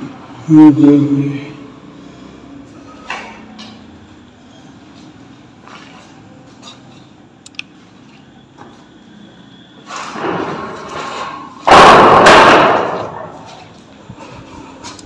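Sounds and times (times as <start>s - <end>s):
heavy object crashing on concrete: 10.0s - 13.6s.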